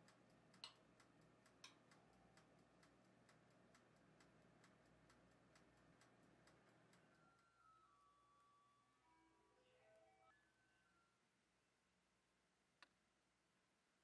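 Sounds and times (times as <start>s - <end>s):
oven timer ticking: 0.0s - 7.6s
timer clicks: 0.0s - 8.0s.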